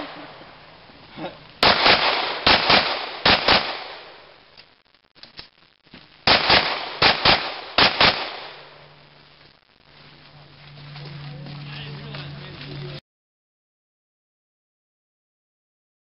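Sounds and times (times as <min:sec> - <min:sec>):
handgun shots in pairs: 0:01.6 - 0:04.2, 0:06.3 - 0:08.7.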